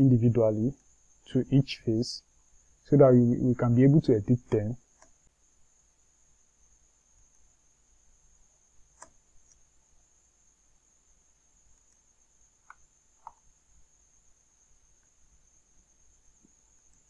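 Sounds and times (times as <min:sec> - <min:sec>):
faint high whine: 0:00.0 - 0:17.0
computer mouse clicks: 0:04.9 - 0:05.3, 0:08.9 - 0:09.7, 0:11.7 - 0:13.5.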